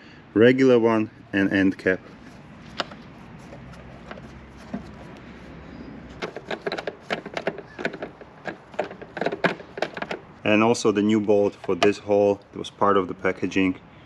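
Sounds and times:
nut turning clicks: 6.2s - 10.3s.

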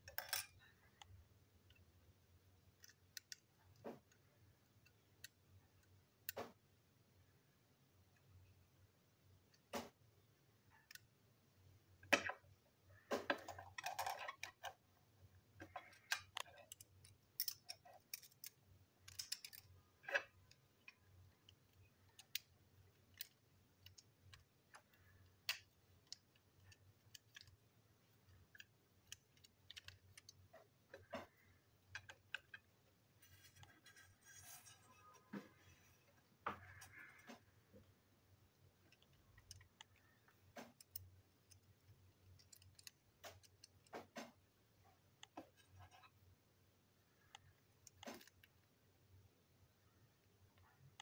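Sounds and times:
clicks of plastic parts: 15.6s - 37.9s, 38.8s - 44.5s, 47.2s - 48.7s.

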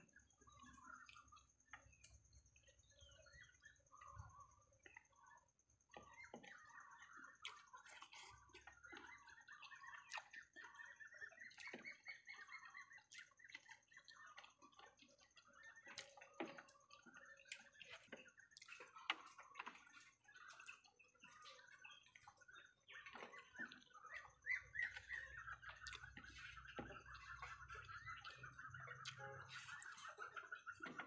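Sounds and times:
small birds chirping: 0.0s - 31.0s.

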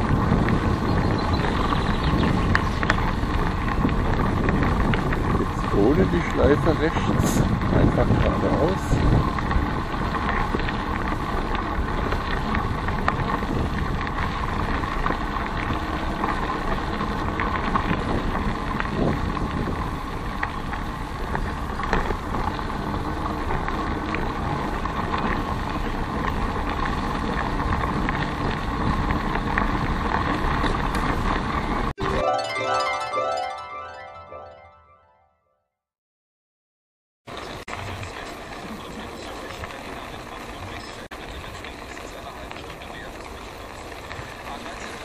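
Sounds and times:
wind noise on microphone: 0.0s - 31.9s
bicycle tyres rolling on asphalt: 0.0s - 32.0s, 37.3s - 45.0s.

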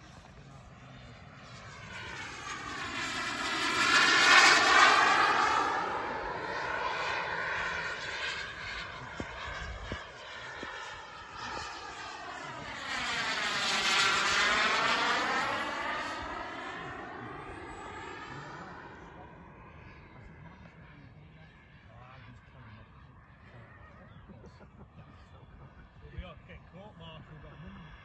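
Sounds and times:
model airplane flying overhead: 0.0s - 28.0s.

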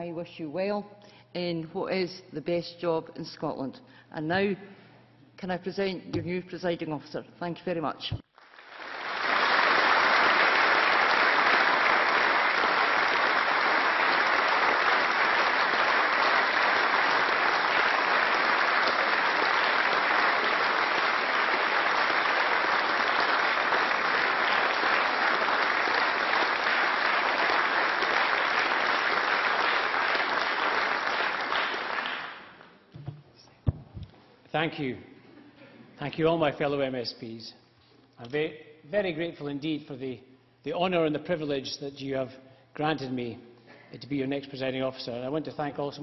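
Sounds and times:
crowd applauding: 8.4s - 32.7s.

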